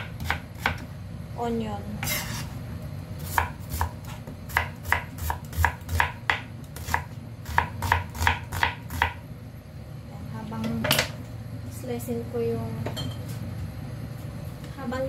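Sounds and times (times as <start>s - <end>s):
knife chopping on cutting board: 0.0s - 0.9s, 3.2s - 9.2s.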